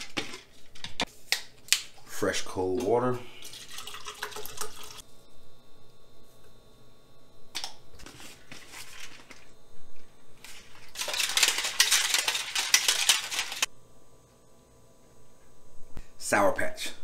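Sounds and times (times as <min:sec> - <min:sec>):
shaker bottle shaken: 0:10.5 - 0:13.7.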